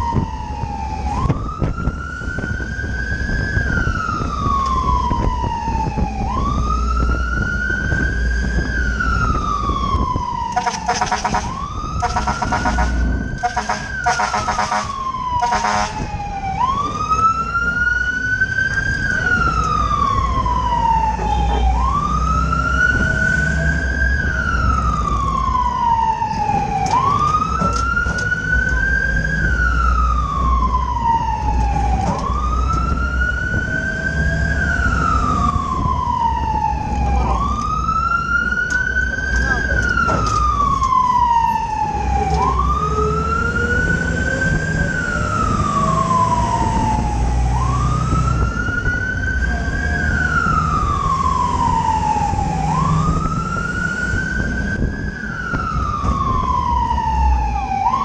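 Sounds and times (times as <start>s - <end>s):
fire truck siren wailing: 0.0s - 58.0s
truck rumble: 0.0s - 58.0s
rapid pulsing siren tone: 8.9s - 17.0s.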